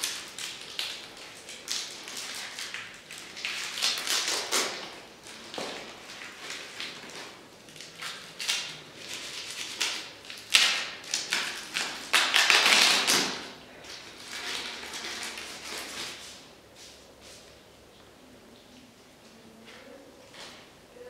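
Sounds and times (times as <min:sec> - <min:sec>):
plastic crinkling: 0:00.0 - 0:16.5.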